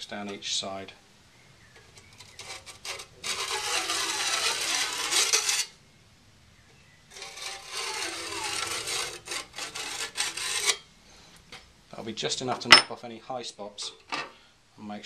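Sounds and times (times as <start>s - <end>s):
stone scraping saw teeth: 2.1s - 5.8s, 7.1s - 10.8s.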